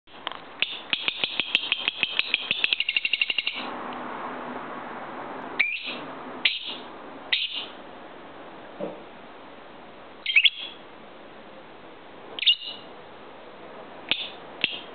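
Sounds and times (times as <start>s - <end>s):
bird high chirps: 0.6s - 3.7s, 5.6s - 7.8s, 10.2s - 10.8s, 12.4s - 12.9s, 14.1s - 14.9s
short bird calls: 5.6s - 7.8s, 10.2s - 10.8s, 12.4s - 12.9s, 14.1s - 14.9s.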